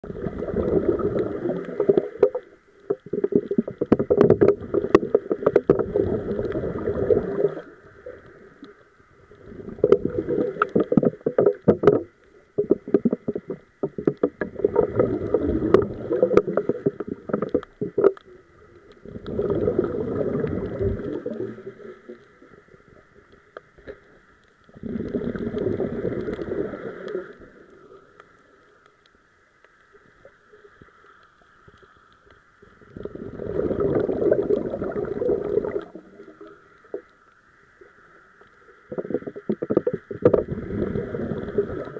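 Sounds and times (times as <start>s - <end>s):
underwater regulator bubbling: 0.0s - 8.8s, 9.4s - 22.5s, 24.7s - 27.4s, 32.8s - 37.1s, 38.8s - 41.9s.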